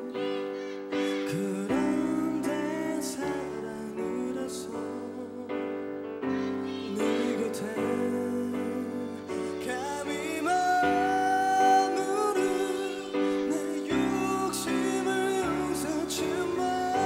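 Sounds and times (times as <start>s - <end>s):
man singing with vibrato: 0.0s - 17.0s
piano and keyboard chords: 0.0s - 17.0s.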